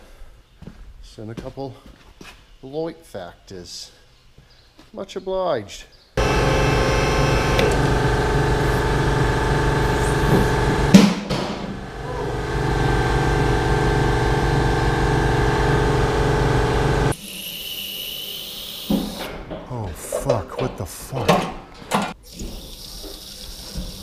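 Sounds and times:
electric hydraulic pump running: 0:06.2 - 0:19.3.

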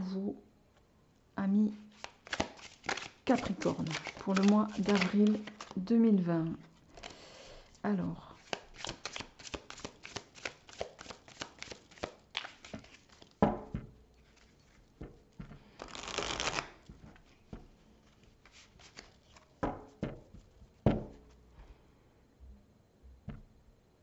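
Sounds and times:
cards being shuffled: 0:01.8 - 0:07.8, 0:08.4 - 0:13.4, 0:14.2 - 0:21.2
cards tapping: 0:01.9 - 0:05.8, 0:08.4 - 0:21.2.

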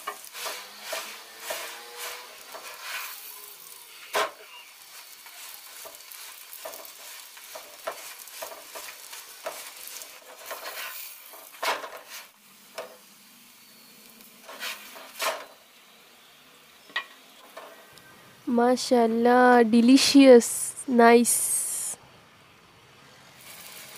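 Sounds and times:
spatula scraping and tapping: 0:00.0 - 0:03.2, 0:05.3 - 0:12.2
flatbread sizzling in oil: 0:00.0 - 0:17.9, 0:23.3 - 0:23.9.

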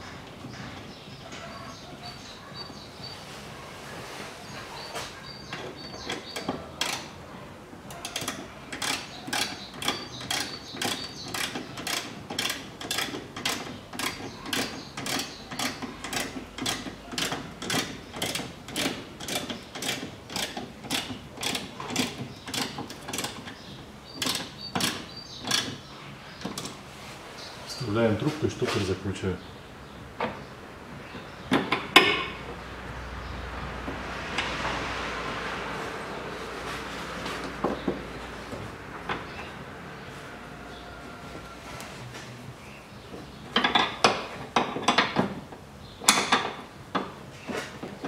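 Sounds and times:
ratchet wrench clicking: 0:08.0 - 0:23.4.

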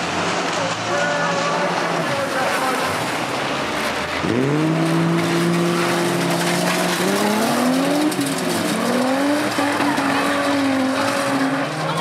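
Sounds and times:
other cars on track: 0:00.0 - 0:12.0
car engine revving hard: 0:02.6 - 0:12.0.

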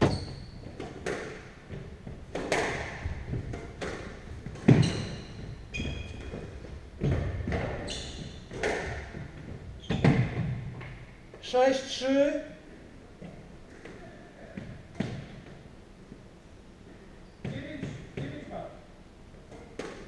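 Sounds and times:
shoes squeaking on wooden floor: 0:00.0 - 0:01.0, 0:03.0 - 0:11.0
squash ball hits: 0:00.0 - 0:06.4, 0:08.4 - 0:10.8, 0:19.5 - 0:20.0.

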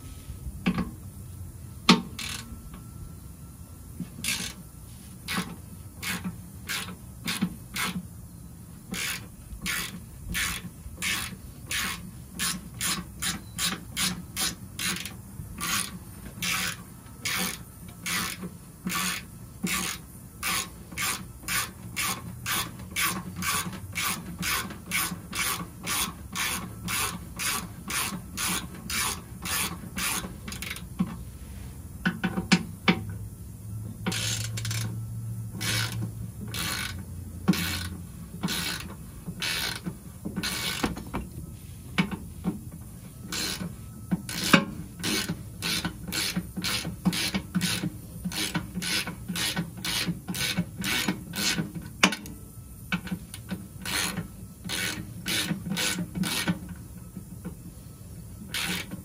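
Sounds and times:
hand ratchet clicking: 0:04.2 - 0:04.6, 0:05.3 - 0:08.0, 0:08.9 - 0:31.1, 0:34.1 - 0:35.0, 0:35.6 - 0:41.0, 0:43.3 - 0:52.3, 0:53.0 - 0:56.7, 0:58.5 - 0:59.0.

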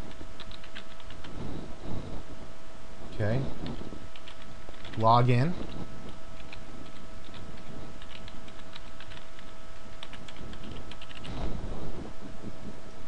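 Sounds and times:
faint steady hum: 0:00.0 - 0:13.0
keyboard typing: 0:00.1 - 0:01.4, 0:03.6 - 0:05.4, 0:06.4 - 0:11.4.

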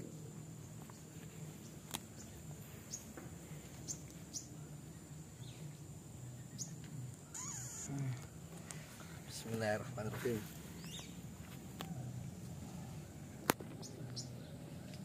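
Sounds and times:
sharp bird chirps: 0:05.4 - 0:07.9
high-pitched insect drone: 0:07.2 - 0:08.2.

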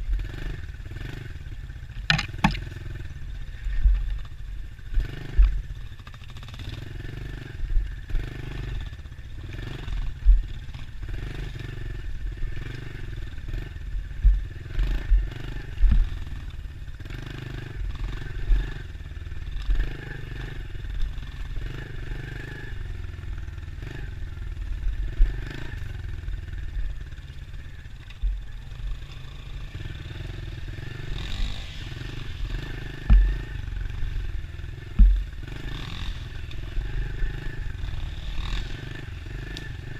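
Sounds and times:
dirt bike engine: 0:00.0 - 0:39.9
sharp low thumps: 0:02.1 - 0:02.8, 0:33.1 - 0:33.4, 0:34.9 - 0:35.5.

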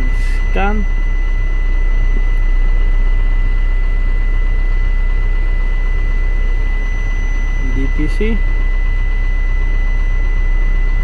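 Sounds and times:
diesel truck engine idling: 0:00.0 - 0:11.0
high-pitched whine: 0:00.0 - 0:11.0.

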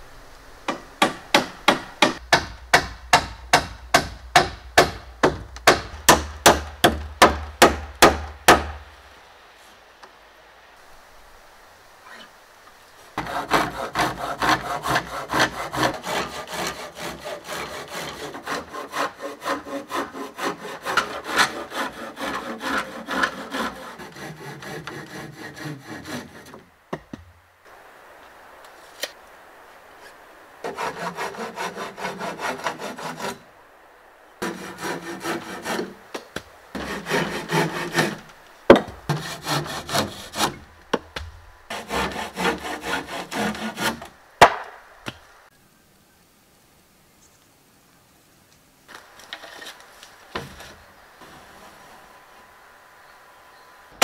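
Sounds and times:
hand saw cutting wood: 0:13.2 - 0:26.7, 0:30.6 - 0:33.4, 0:34.4 - 0:36.0, 0:36.8 - 0:40.7, 0:41.7 - 0:44.6.

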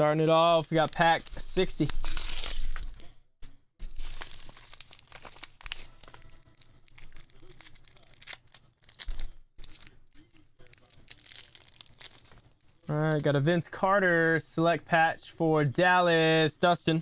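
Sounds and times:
plastic bag crinkling: 0:03.8 - 0:13.4.

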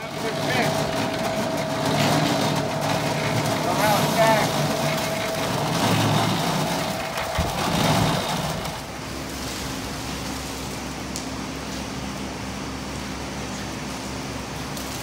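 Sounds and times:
electric concrete mixer running: 0:00.0 - 0:10.1.

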